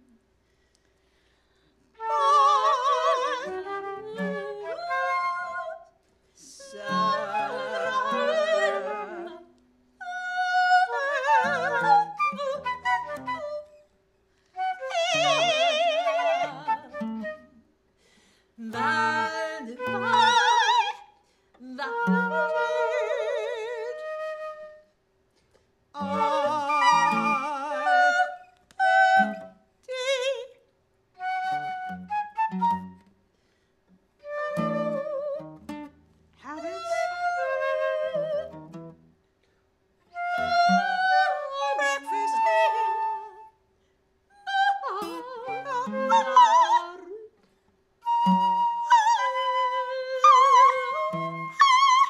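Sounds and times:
acoustic guitar: 0.0 - 43.6, 44.4 - 52.0
woman singing operatically: 2.0 - 13.8, 14.6 - 17.5, 18.6 - 24.7, 26.0 - 30.6, 36.4 - 38.6, 40.2 - 43.5, 44.4 - 47.3, 48.0 - 52.0
sustained notes of improvised music: 6.6 - 17.7, 18.6 - 21.1, 21.8 - 29.7, 31.2 - 33.2, 34.0 - 39.2, 40.0 - 43.6, 48.0 - 52.0.

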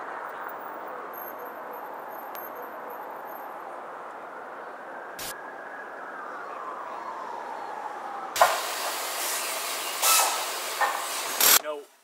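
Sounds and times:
loud burst of hiss: 8.4 - 11.6.

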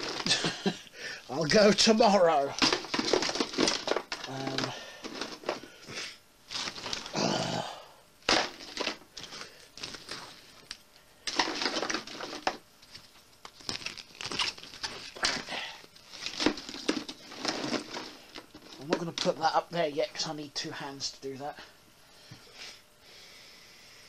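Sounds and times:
rustling and crinkling: 0.0 - 0.8, 1.4 - 7.2, 8.2 - 19.5.

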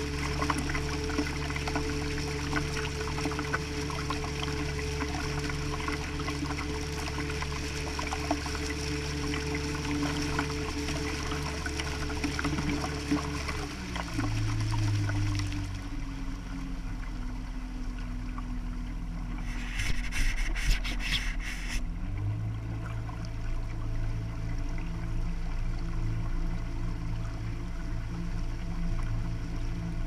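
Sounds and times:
motorboat engine running: 0.0 - 30.0
water rushing along hull: 0.0 - 30.0
scratching on camera housing: 19.4 - 21.8.

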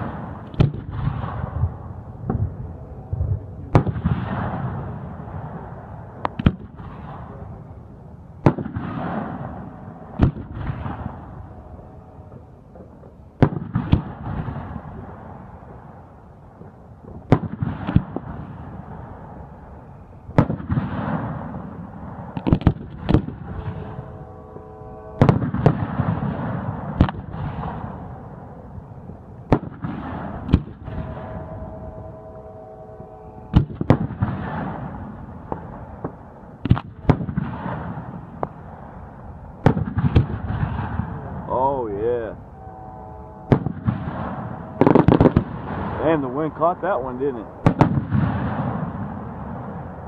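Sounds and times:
firework shells bursting with echo: 0.0 - 42.4, 43.4 - 50.0.

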